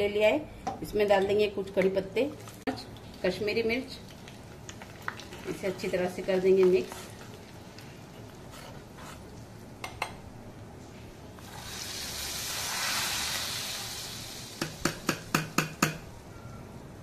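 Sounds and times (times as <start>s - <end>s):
hot oil sizzling: 11.4s - 15.3s.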